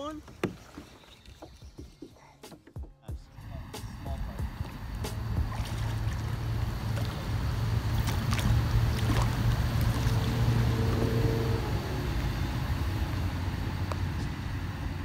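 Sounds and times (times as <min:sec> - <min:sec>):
steady low rumble: 0:03.1 - 0:15.0
fish splashing in water: 0:04.6 - 0:12.5.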